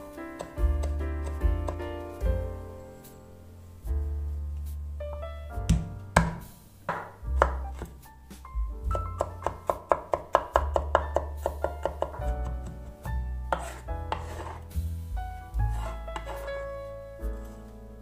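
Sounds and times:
soft piano music: 0.0 - 18.0
knife chopping on wooden board: 0.4 - 1.8, 5.7 - 8.0, 8.9 - 12.9, 13.5 - 14.6, 15.7 - 16.5.

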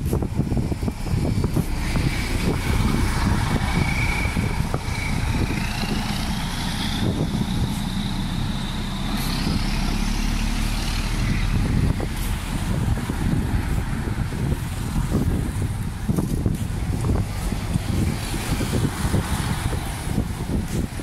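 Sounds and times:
traffic rumbling: 0.0 - 21.0
high whine rising in pitch: 1.4 - 12.4.

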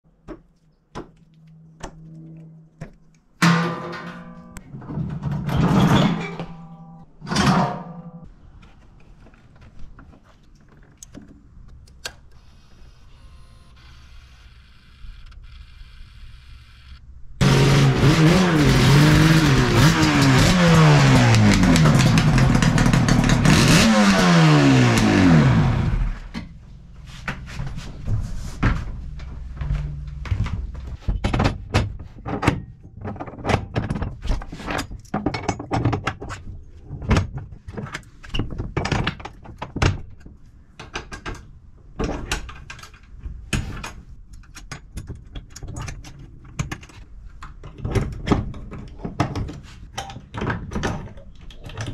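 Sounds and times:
motorcycle engine revving: 17.4 - 26.3.

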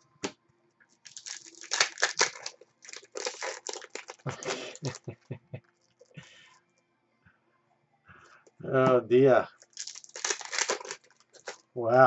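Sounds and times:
foil wrapper crinkling: 1.0 - 5.0, 9.5 - 11.7.

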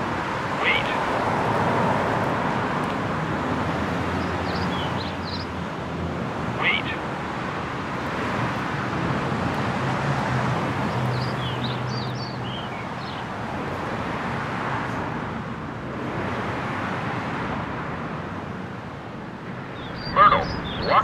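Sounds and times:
cars passing: 0.0 - 21.0
bird chirping: 4.2 - 5.5, 11.1 - 13.2, 19.7 - 21.0.

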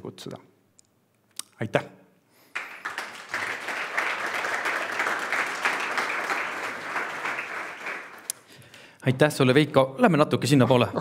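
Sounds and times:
audience applauding: 2.5 - 8.5.

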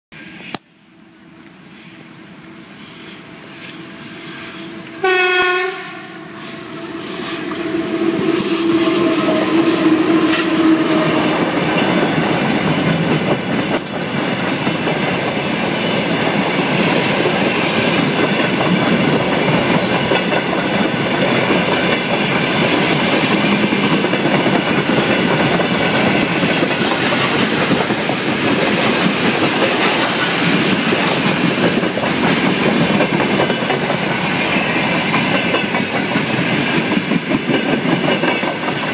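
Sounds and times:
train rumbling past: 0.2 - 38.9
train horn blast: 4.6 - 11.4
wheels clattering on rails: 8.3 - 34.2, 34.9 - 38.9.

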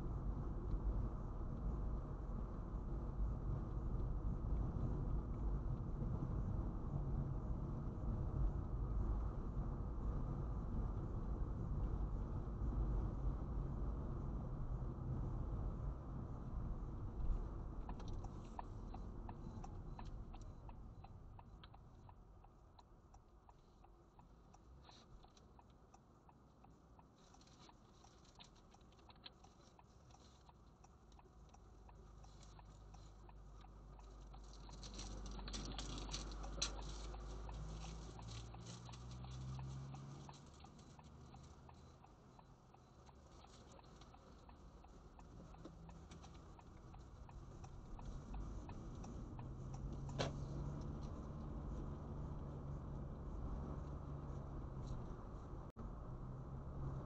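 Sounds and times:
faint low car rumble: 0.0 - 57.0
light irregular ticking: 16.9 - 55.8.

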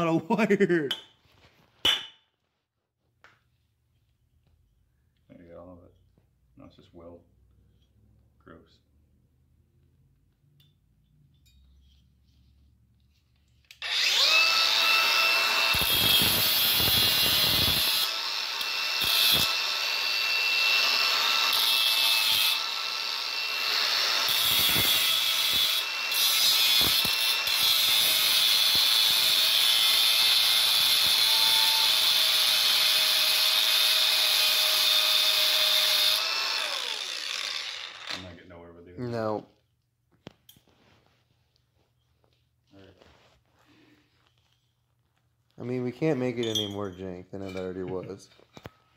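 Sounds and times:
angle grinder grinding metal: 13.8 - 38.4.

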